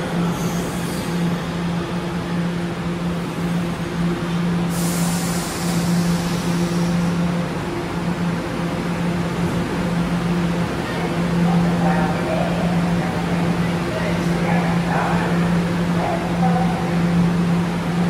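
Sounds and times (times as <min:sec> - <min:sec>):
subway train stopping: 0:00.0 - 0:18.0
hiss of air: 0:04.6 - 0:07.1.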